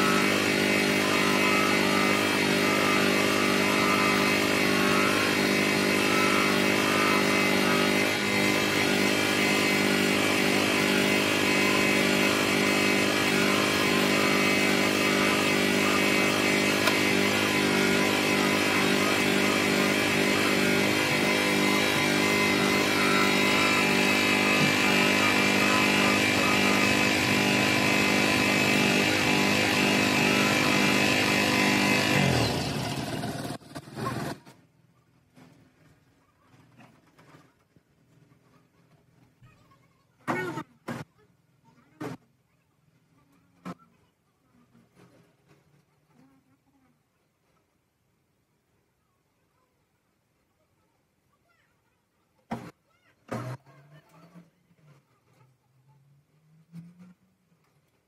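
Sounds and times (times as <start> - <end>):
plastic lens hissing on buffing wheel: 0.0 - 32.3
bench grinder motor humming: 0.0 - 34.4, 53.3 - 53.6.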